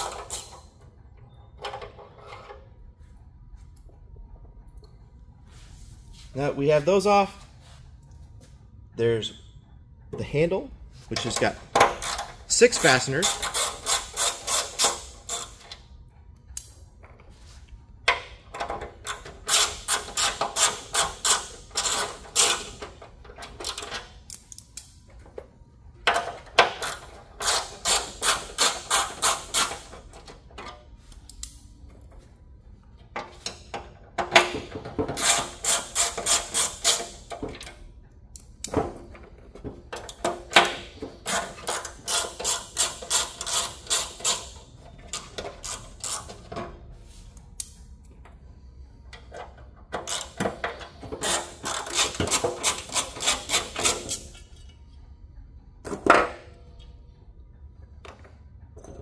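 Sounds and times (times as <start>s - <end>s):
ratchet clicking: 13.2s - 15.7s, 19.1s - 22.8s, 35.2s - 37.2s, 41.2s - 46.4s, 50.0s - 50.5s, 51.2s - 54.3s.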